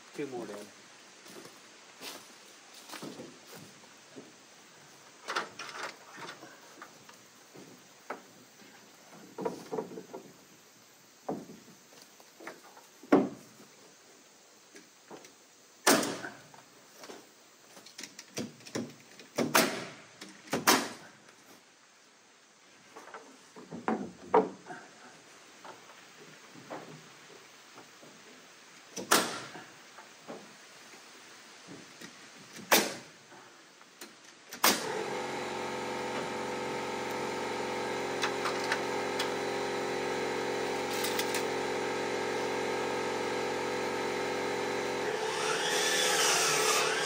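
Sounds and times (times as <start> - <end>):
wooden knocks and clunks: 9.1 - 10.4, 11.2 - 11.7, 12.4 - 13.6, 17.8 - 20.8, 22.9 - 24.8.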